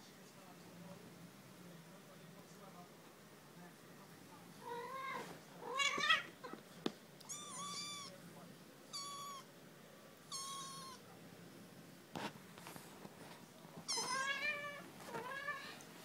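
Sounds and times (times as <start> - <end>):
kitten mewing: 7.2 - 8.1, 8.9 - 9.5, 10.3 - 11.0.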